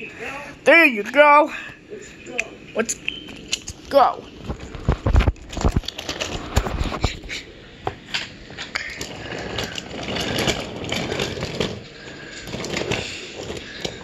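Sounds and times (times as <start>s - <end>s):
rattle of wooden wheels: 8.2s - 14.0s.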